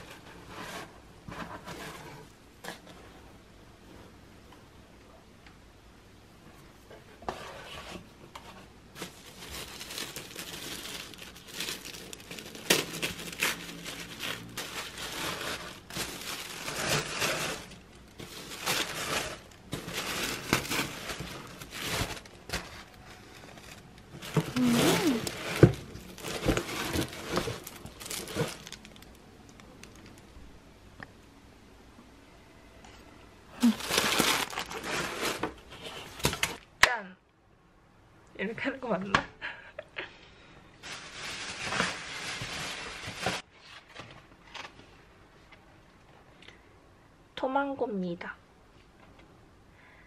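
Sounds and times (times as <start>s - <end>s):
tissue paper crinkling: 8.9s - 30.2s, 33.6s - 36.6s, 40.8s - 44.7s.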